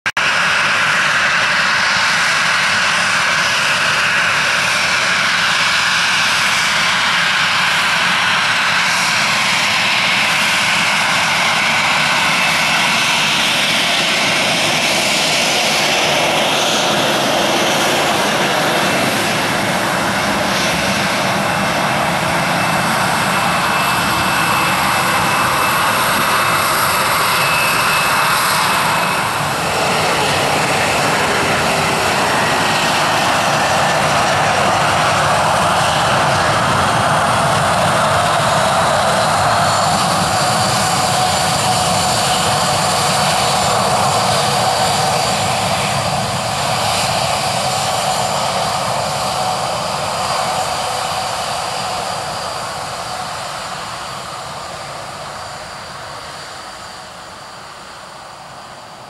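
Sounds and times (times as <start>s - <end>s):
jet engines whine and rush: 0.0s - 59.0s.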